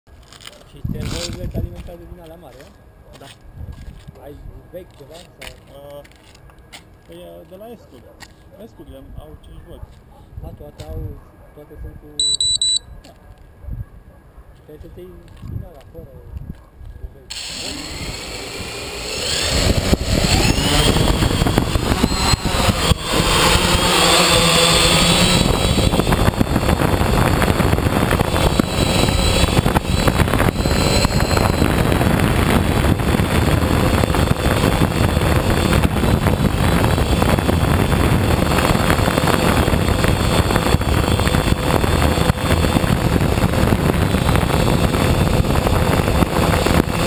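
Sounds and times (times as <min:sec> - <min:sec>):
wind rushing over microphone: 0:00.7 - 0:02.6, 0:03.4 - 0:05.2, 0:14.8 - 0:47.0
drone motors whining: 0:17.3 - 0:47.0.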